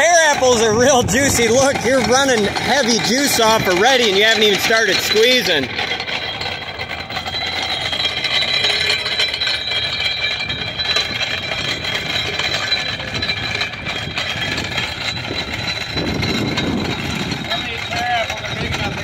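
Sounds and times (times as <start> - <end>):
hand-cranked grinder rattling and crunching: 0.0 - 19.0
mechanical drone: 0.0 - 19.0.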